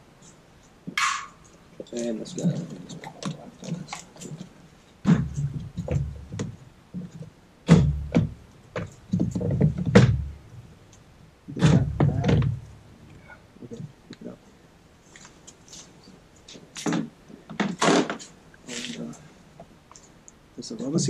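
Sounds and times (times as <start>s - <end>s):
plastic knocking and rattling: 2.4s - 10.3s, 11.6s - 12.6s.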